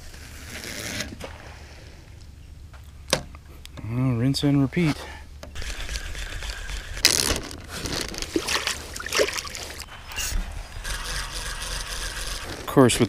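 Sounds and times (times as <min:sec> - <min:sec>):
hands splashing in water: 0:08.2 - 0:09.8.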